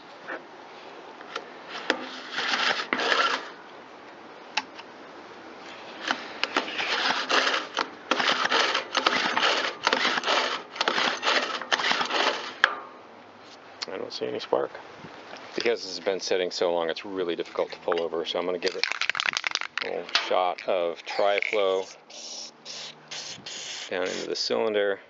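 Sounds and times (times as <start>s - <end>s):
engine recoil starter pulls: 6.0s - 12.6s.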